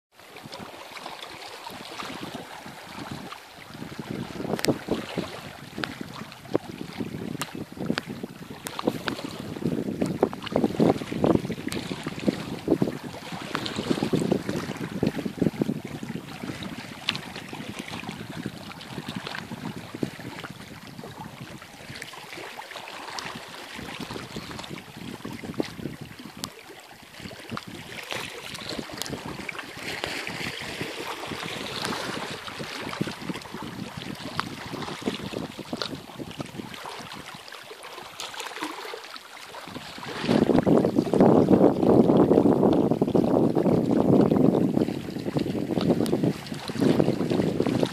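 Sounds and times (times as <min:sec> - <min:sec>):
small waves lapping on rocks: 0:00.1 - 0:47.9
wind buffeting microphone: 0:00.3 - 0:37.5, 0:39.6 - 0:47.9.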